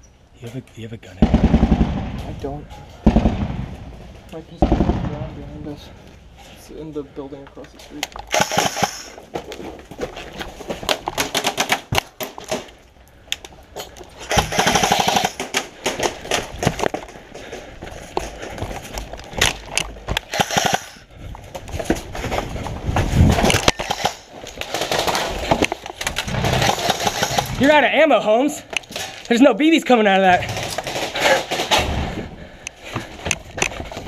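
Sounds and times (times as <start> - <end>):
airsoft guns firing: 1.2 - 2.4, 3.0 - 4.0, 4.6 - 5.4, 8.2 - 9.2, 10.9 - 12.6, 14.2 - 16.8, 19.4 - 21.0, 23.5 - 27.9
gear rustling: 7.6 - 27.7.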